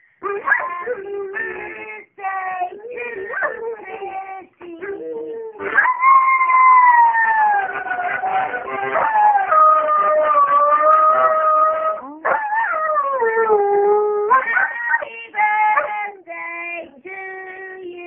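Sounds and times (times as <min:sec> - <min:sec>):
dog howling: 0:05.7 - 0:15.1
toy accordion: 0:07.6 - 0:09.0.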